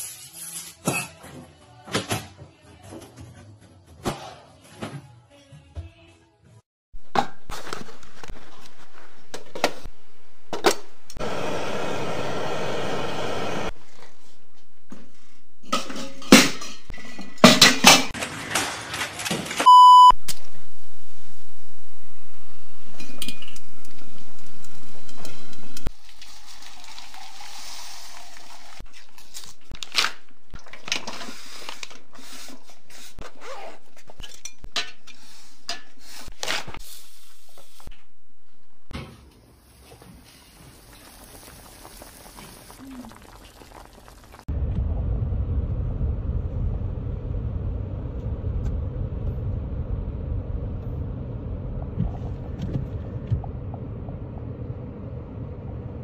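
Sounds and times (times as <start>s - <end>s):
knife slitting packing tape: 0.0s - 0.8s
metal pot and utensils clattering: 15.6s - 19.6s, 23.0s - 23.6s, 34.0s - 36.0s
short electronic beep: 19.7s - 20.2s.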